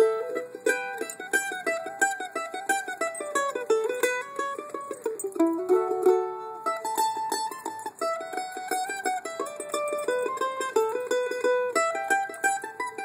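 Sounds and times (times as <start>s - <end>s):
mandolin playing bluegrass tune: 0.0s - 13.0s.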